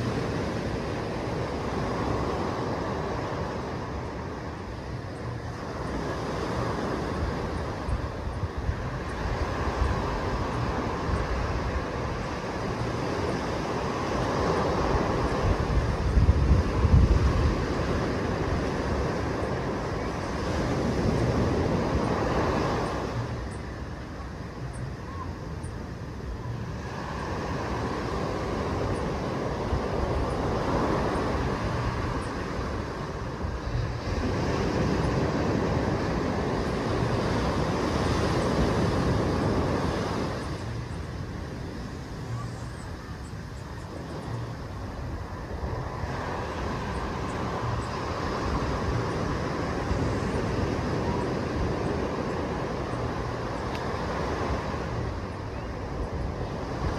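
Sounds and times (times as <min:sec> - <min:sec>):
small waves washing on sand: 0:00.0 - 0:24.6, 0:25.3 - 0:56.9.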